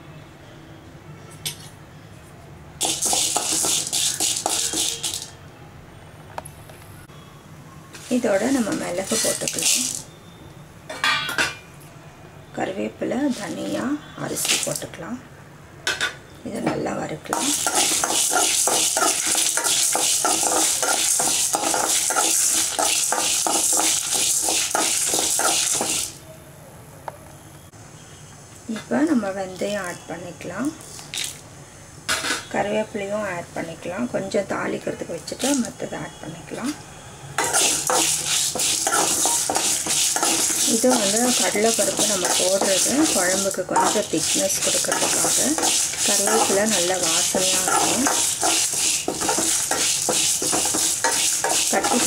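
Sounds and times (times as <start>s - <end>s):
lentils rattling in metal pan: 2.8s - 5.3s, 17.3s - 26.2s, 37.4s - 52.0s.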